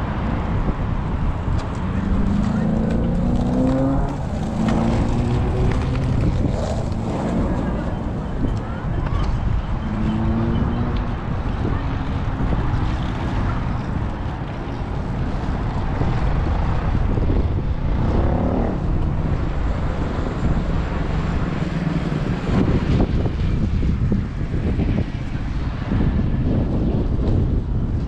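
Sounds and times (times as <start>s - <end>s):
road traffic passing: 0.0s - 28.0s
wind on microphone: 0.0s - 28.0s
vehicle engine speeding up: 1.6s - 8.6s, 9.8s - 13.6s, 15.7s - 23.3s.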